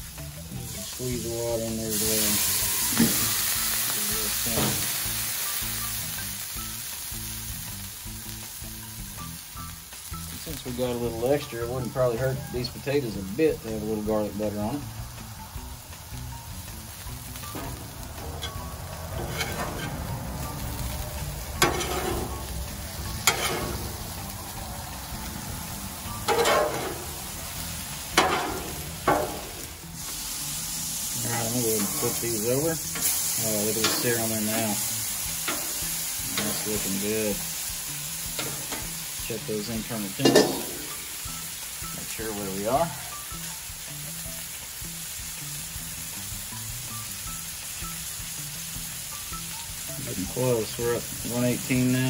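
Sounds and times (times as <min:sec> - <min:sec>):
potatoes frying: 0:00.0 - 0:52.0
steam hissing on griddle: 0:00.0 - 0:52.0
metal spatula scraping a griddle: 0:17.6 - 0:20.9, 0:21.5 - 0:24.0, 0:26.1 - 0:27.3, 0:28.1 - 0:30.1, 0:31.2 - 0:37.1, 0:38.3 - 0:38.9.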